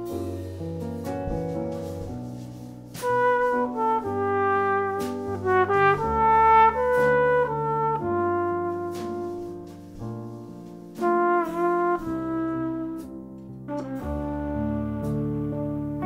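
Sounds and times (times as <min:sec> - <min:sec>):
drum strokes: 0:00.0 - 0:07.5
jazz trumpet melody: 0:00.0 - 0:16.0
piano chords: 0:00.0 - 0:16.0.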